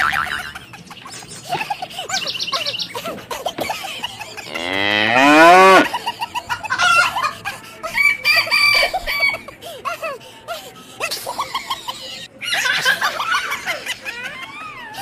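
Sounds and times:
cow mooing: 4.5s - 5.9s.

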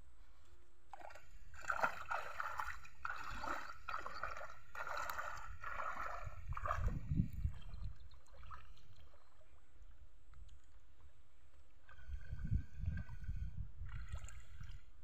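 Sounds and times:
wading through shallow water: 0.1s - 15.0s.

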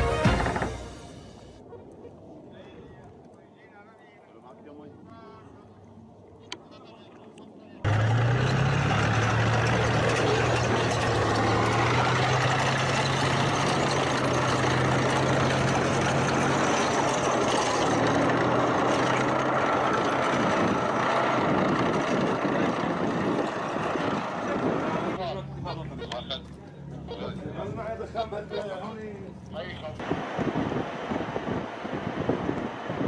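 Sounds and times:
tank engine drone: 0.1s - 1.6s, 7.8s - 33.0s
loud mechanical noise: 7.9s - 25.2s.

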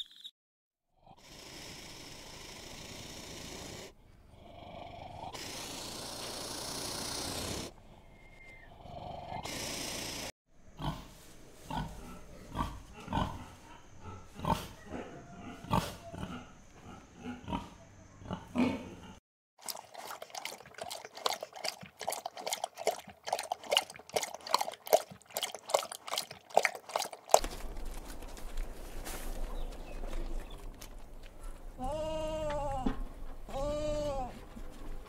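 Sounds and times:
piglets grunting and squealing: 11.7s - 27.2s
dog eating from metal bowl: 19.6s - 27.6s.

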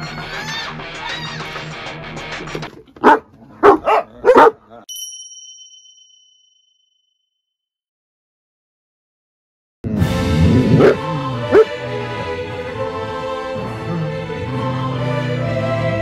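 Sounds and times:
dog barking sharply: 3.0s - 4.6s
chime sound effect: 4.9s - 7.2s.

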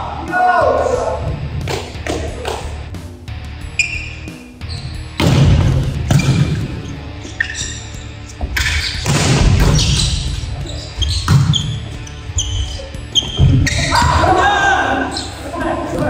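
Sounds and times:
background music: 0.0s - 16.0s
volleyball hit by hands: 5.2s - 6.7s, 8.6s - 9.9s.

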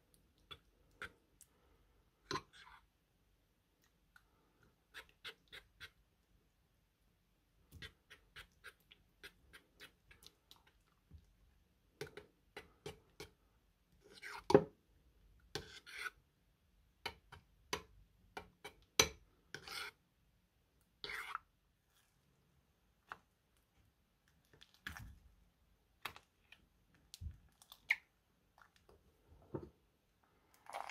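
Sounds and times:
spoon scraping ceramic bowl: 19.5s - 20.0s, 21.0s - 21.5s
wet slime squishes: 23.0s - 29.1s.

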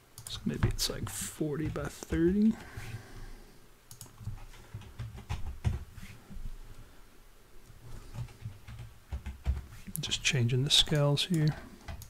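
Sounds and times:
low steady hum: 0.0s - 12.0s
keyboard and mouse clicks: 3.9s - 5.8s, 8.1s - 10.1s, 10.8s - 12.0s.

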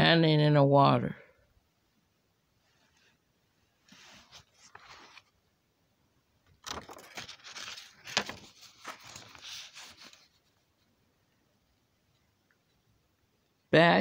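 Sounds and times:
paper pages rustling: 3.9s - 5.4s, 6.6s - 10.9s.

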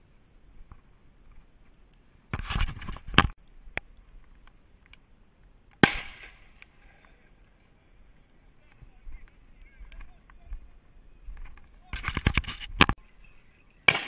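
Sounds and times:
rustling: 0.6s - 14.0s
shotgun shot with echo: 5.8s - 6.4s.

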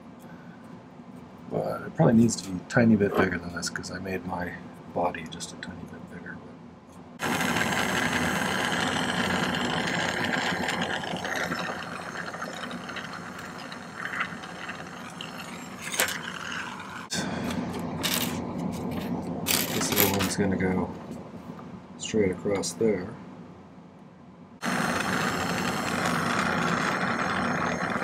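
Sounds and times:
gas torch flame hissing: 7.2s - 17.5s, 24.6s - 28.0s.

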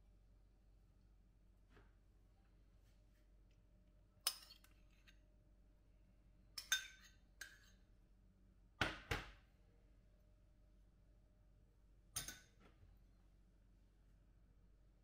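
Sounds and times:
kitchenware clinking: 6.6s - 7.7s, 12.2s - 12.6s.

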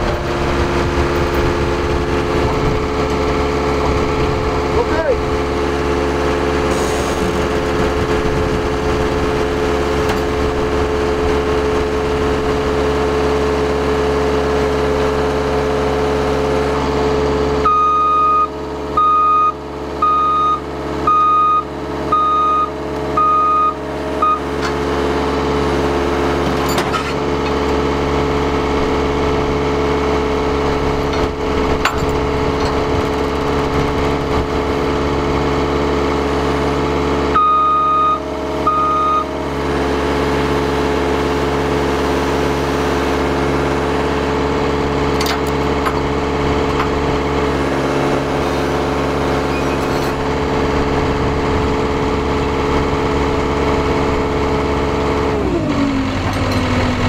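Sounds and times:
diesel engine running: 0.0s - 57.0s
reverse alarm beeping: 17.6s - 24.5s, 37.3s - 39.4s.

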